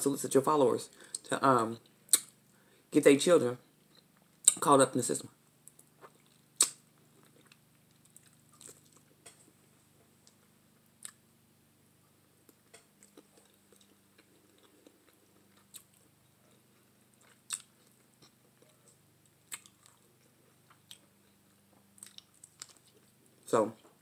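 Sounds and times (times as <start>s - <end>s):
faint low hum: 0.0s - 24.0s
wet mouth sounds of eating: 5.7s - 9.1s.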